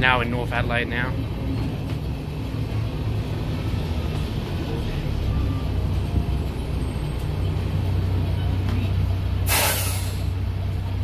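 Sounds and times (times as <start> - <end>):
bus diesel engine running: 0.0 - 11.0
air brake hiss: 9.4 - 10.3.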